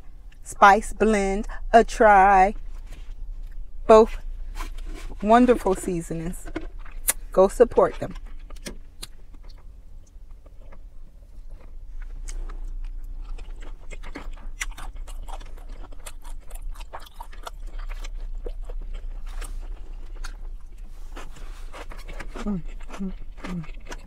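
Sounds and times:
chewing and mouth smacks: 0:08.2 - 0:24.0.

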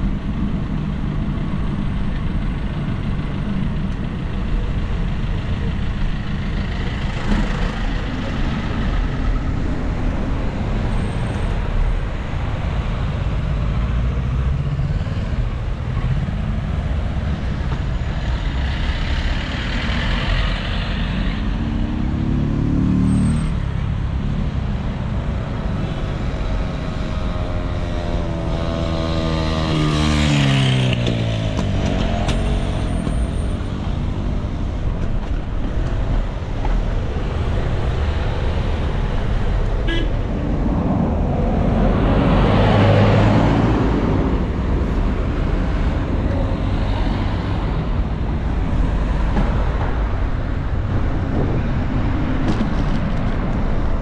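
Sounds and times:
street traffic rumble: 0:00.0 - 0:54.0
vehicle passing by: 0:36.9 - 0:54.0.

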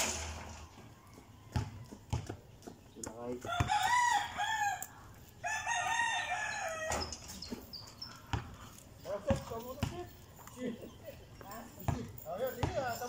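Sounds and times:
rooster crowing: 0:00.7 - 0:02.2, 0:03.4 - 0:07.1.

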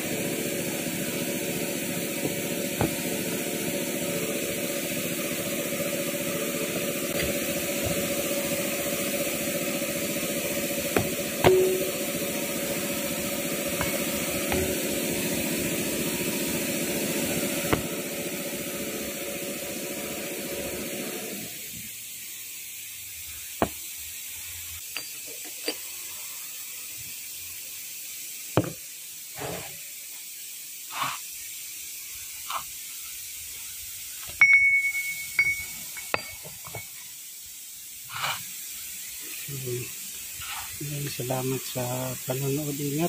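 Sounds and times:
steady mechanical hum: 0:00.0 - 0:27.8, 0:32.3 - 0:43.0
ringing metallic clink: 0:11.4 - 0:12.2, 0:24.9 - 0:25.8, 0:34.4 - 0:37.0.

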